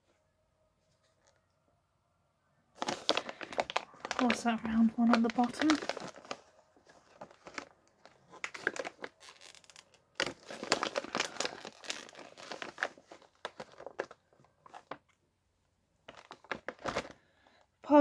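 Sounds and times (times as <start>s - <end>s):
plastic packet crinkling: 2.8s - 15.0s, 16.1s - 17.2s.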